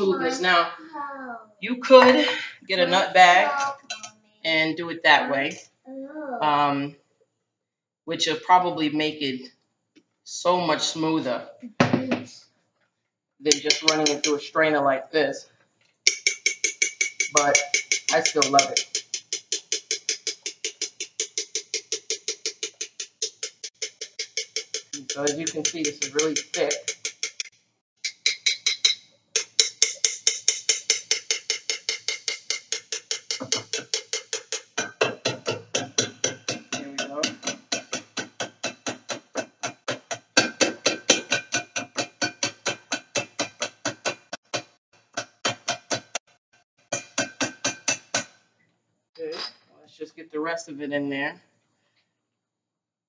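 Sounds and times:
metal spoon scraping strainer: 13.5 - 14.4, 16.1 - 27.5.

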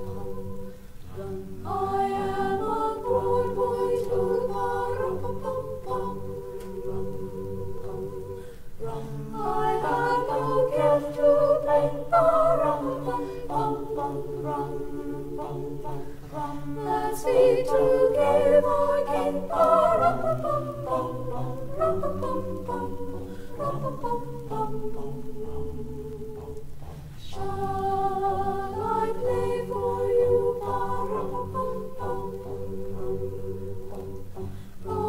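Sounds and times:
choir singing a cappella: 0.0 - 35.0.

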